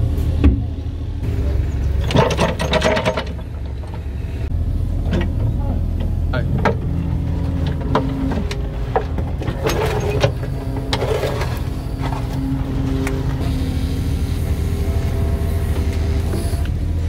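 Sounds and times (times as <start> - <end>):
diesel engine running: 0.0 - 17.0
hydraulic whine: 0.0 - 17.0
bucket scraping soil and stones: 7.3 - 13.0.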